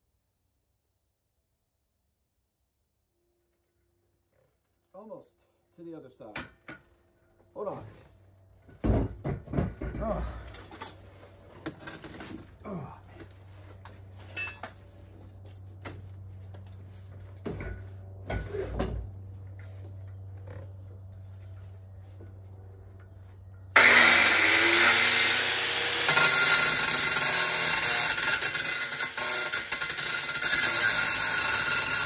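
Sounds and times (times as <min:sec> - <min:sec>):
grinder cutting metal: 0:23.8 - 0:32.0.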